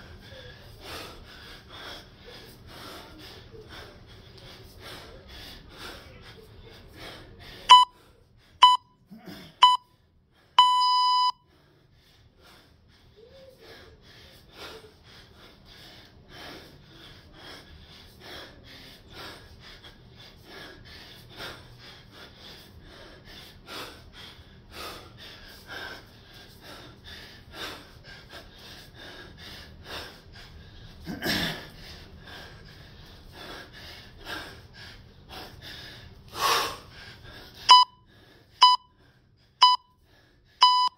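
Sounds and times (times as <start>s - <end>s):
person breathing hard: 0.0s - 40.9s
interval timer beeps: 7.7s - 7.9s, 8.6s - 8.9s, 9.6s - 9.8s, 10.6s - 11.4s, 37.7s - 38.0s, 38.6s - 38.9s, 39.6s - 40.0s, 40.6s - 40.9s.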